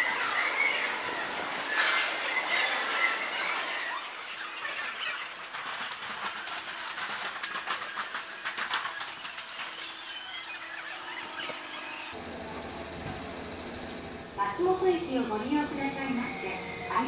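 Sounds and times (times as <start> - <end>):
train wheels squealing on rails: 8.3 - 12.1
steady rail noise: 12.2 - 17.0.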